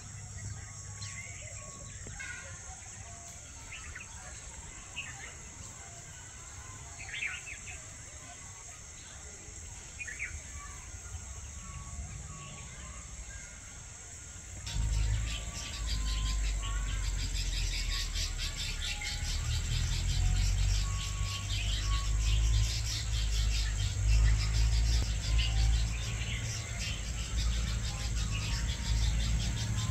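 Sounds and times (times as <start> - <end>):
high insect drone: 0.0 - 29.9
rapid insect-like pulsing: 0.0 - 29.9
bird notes: 14.6 - 29.9.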